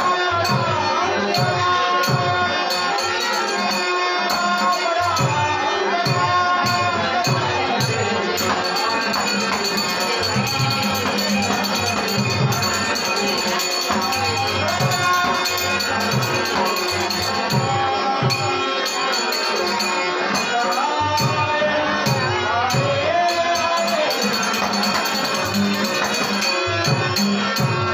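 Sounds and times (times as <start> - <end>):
harmonium chords: 0.0 - 27.9
man singing: 0.0 - 27.9
hand cymbals jingling: 8.4 - 17.7, 18.4 - 21.0, 23.3 - 27.6.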